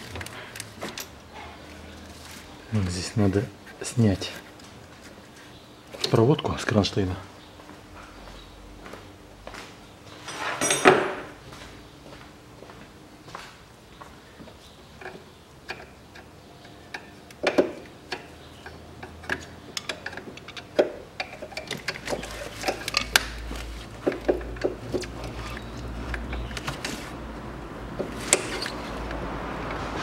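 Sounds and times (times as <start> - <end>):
clicks and knocks of hand work: 15.0 - 27.2.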